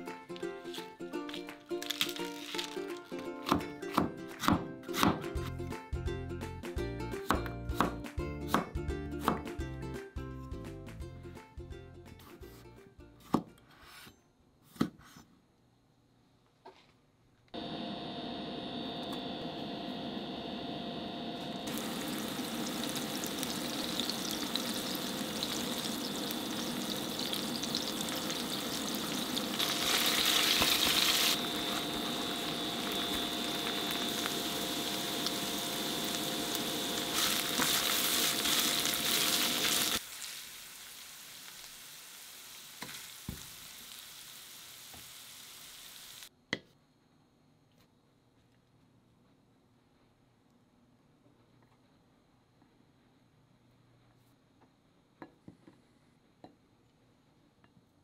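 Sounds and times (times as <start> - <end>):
faint hum: 15.4 - 40.0
mince sizzling in a pan: 21.6 - 46.3.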